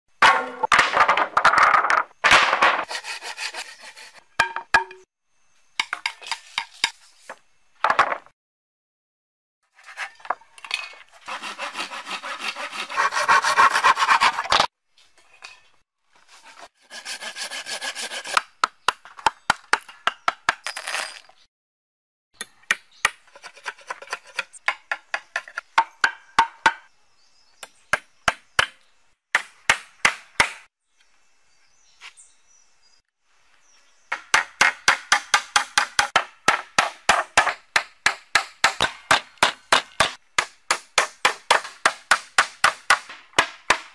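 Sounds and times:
hand saw rasping through wood: 0:02.9 - 0:04.2, 0:11.2 - 0:14.6, 0:16.3 - 0:18.4
blade shaving wooden stake: 0:11.1 - 0:14.7, 0:16.2 - 0:18.4.

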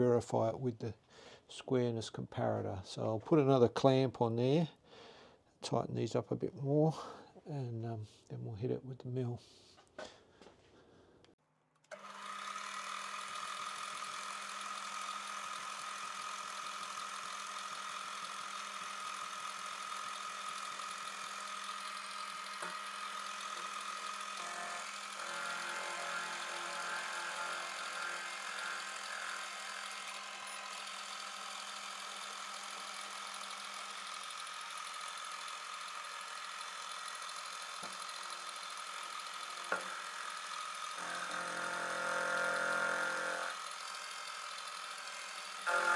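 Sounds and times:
milling machine motor humming: 0:11.8 - 0:45.9
mill cutting metal: 0:11.9 - 0:45.9.

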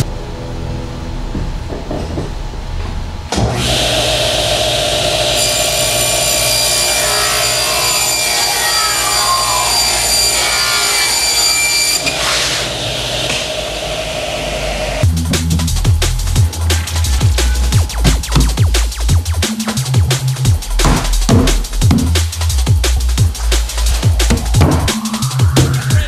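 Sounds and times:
table saw whining: 0:03.3 - 0:15.6
saw blade cutting board: 0:05.3 - 0:14.0.

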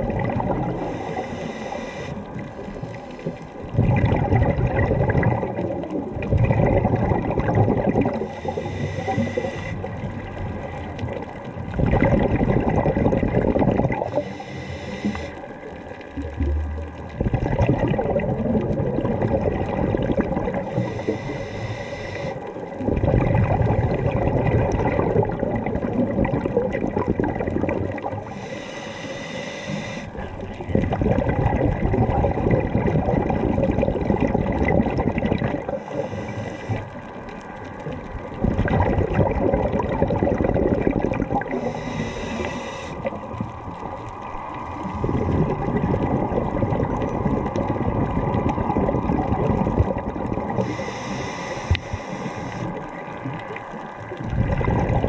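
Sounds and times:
exhaled bubbles underwater: 0:00.0 - 0:55.0
diver inhaling through regulator: 0:00.6 - 0:03.5, 0:08.1 - 0:10.0, 0:13.9 - 0:15.4, 0:20.5 - 0:22.6, 0:28.1 - 0:30.4, 0:35.6 - 0:37.1, 0:40.6 - 0:43.3, 0:50.5 - 0:52.9.

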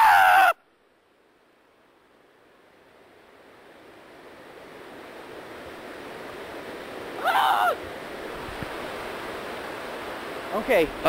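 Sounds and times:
stream water rushing: 0:00.0 - 0:11.0
person yelling: 0:07.2 - 0:07.8.

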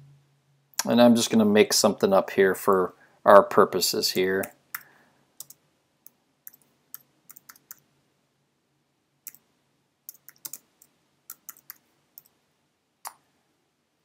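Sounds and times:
computer keyboard keystrokes: 0:06.5 - 0:07.8, 0:10.1 - 0:12.3.

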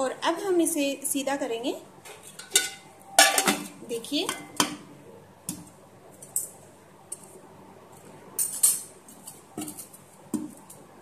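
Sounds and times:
steel pot and lid clinking: 0:02.4 - 0:03.7.

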